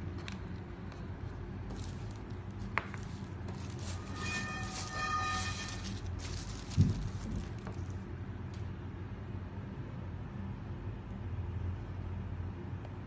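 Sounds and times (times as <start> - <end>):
steady low hum: 0.0 - 13.0
plastic bag crinkling: 1.7 - 8.0.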